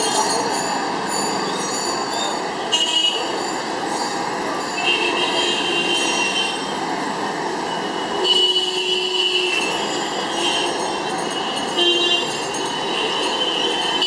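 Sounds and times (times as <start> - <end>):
street traffic: 0.0 - 14.0
vehicle horns honking: 8.2 - 10.8, 11.6 - 14.0.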